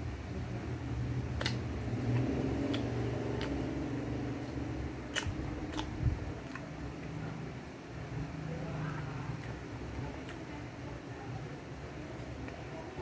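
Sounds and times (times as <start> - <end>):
steady low hum: 0.0 - 13.0
person chewing food: 1.3 - 7.2
wet lip smacks: 1.4 - 3.6, 4.4 - 6.7.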